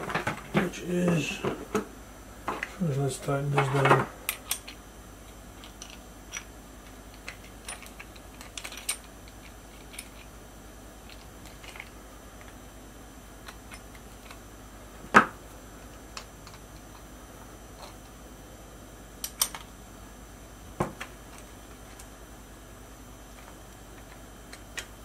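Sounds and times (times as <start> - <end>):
small metal parts clicking: 7.1 - 10.3, 11.0 - 12.5.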